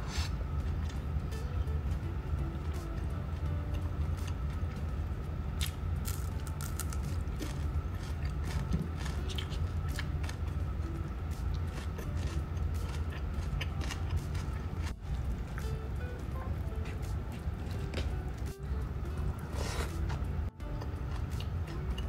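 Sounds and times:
steady low hum: 0.0 - 22.0
person chewing: 5.6 - 10.6, 11.3 - 16.1.

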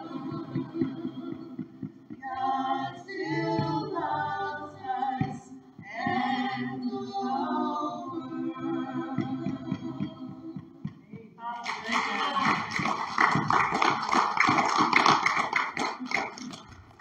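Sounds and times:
soft low accompaniment: 0.0 - 11.4
women singing worship song: 0.0 - 14.2.

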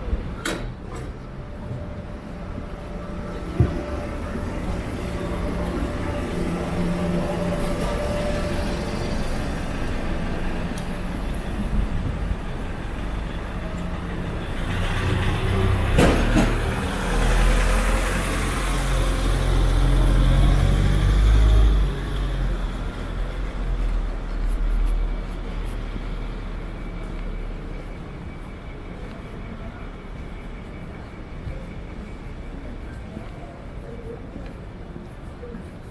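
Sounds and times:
street ambience: 0.0 - 35.9
large vehicle passing close: 0.9 - 24.4.

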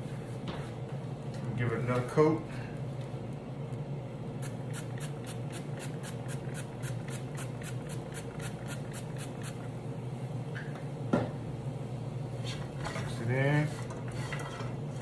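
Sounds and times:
steady low hum: 0.0 - 15.0
spray bottle spritzing: 4.4 - 9.6.

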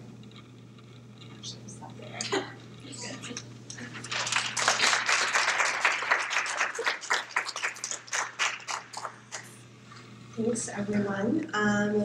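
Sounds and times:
audience applauding: 3.7 - 9.6.

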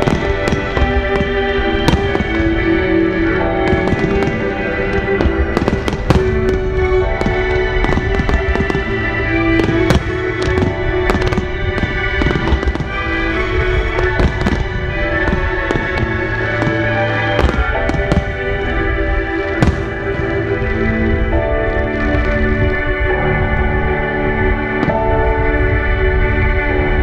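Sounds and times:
fireworks bangs and crackles: 0.0 - 23.0, 24.4 - 26.6
music with long held tones: 0.0 - 27.0.

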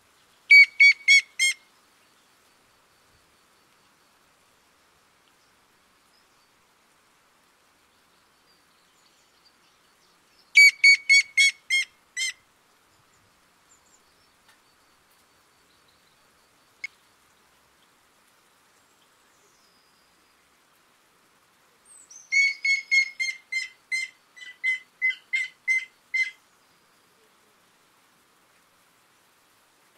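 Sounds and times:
woodpecker whistled notes: 0.5 - 1.6, 10.6 - 11.8, 22.3 - 26.3.

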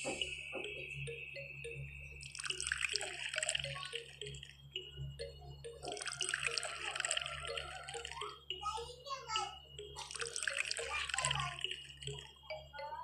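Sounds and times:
water pouring and splashing: 2.3 - 4.2, 5.8 - 8.4, 10.0 - 12.2.

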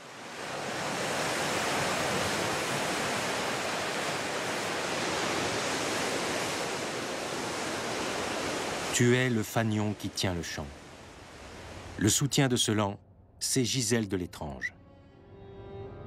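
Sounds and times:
surf washing among rocks: 0.0 - 12.2.

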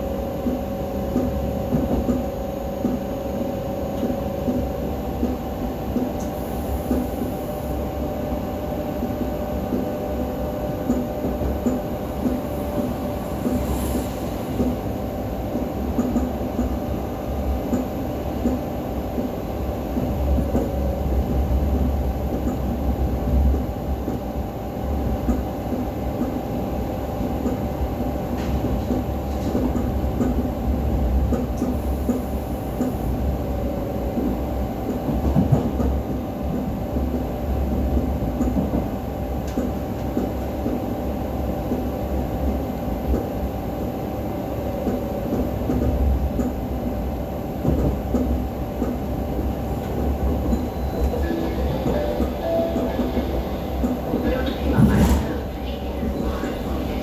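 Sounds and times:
train hum: 0.0 - 57.0.

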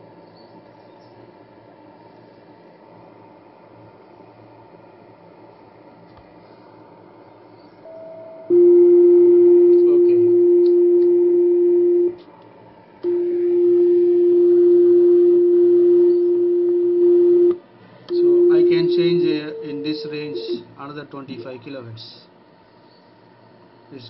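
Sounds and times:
radio beat-note tone: 7.9 - 12.2, 13.0 - 17.5, 18.1 - 20.6.

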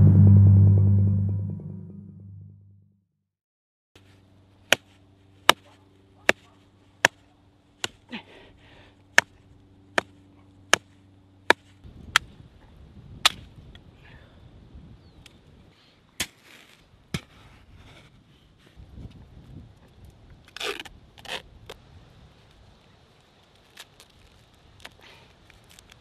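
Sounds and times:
low steady drone: 0.0 - 2.7
rough low rumble: 0.0 - 2.9.

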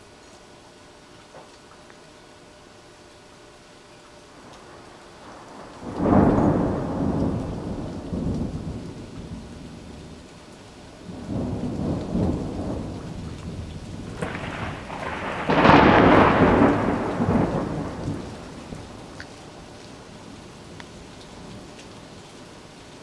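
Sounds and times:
steady rain: 0.0 - 23.0
thunder rolling: 4.5 - 10.2, 11.0 - 20.4.

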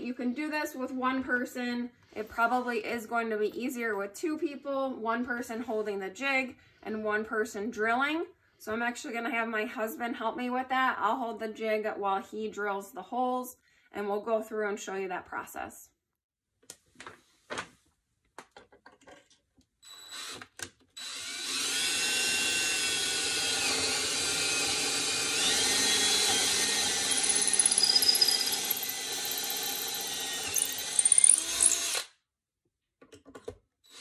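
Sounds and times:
cordless drill boring wood: 19.8 - 32.2.

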